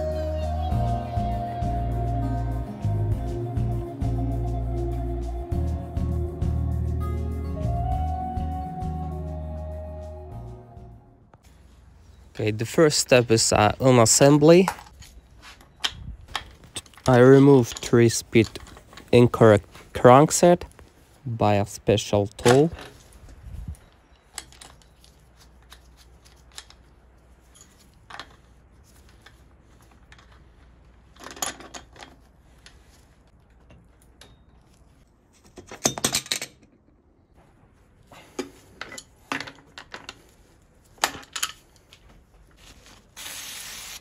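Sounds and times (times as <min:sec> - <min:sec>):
metal tools clicking on bicycle crank: 0:16.3 - 0:18.8.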